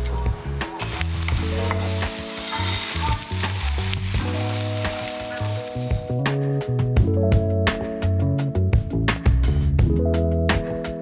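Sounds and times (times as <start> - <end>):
background music sustained notes: 0.0 - 11.0
onion sizzling in frying pan: 0.8 - 6.2.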